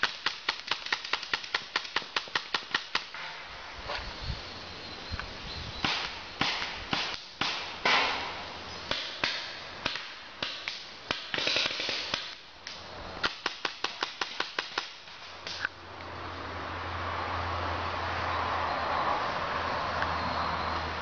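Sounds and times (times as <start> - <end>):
paintball markers firing: 0.0 - 3.2, 8.9 - 15.6.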